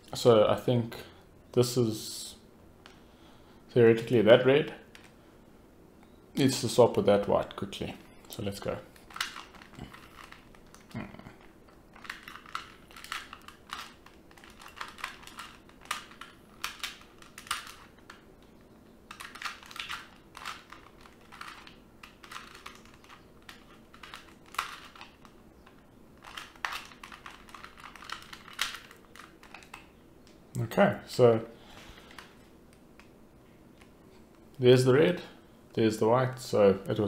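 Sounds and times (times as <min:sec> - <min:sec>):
puzzle cube plastic clicks: 0:08.3 - 0:30.4.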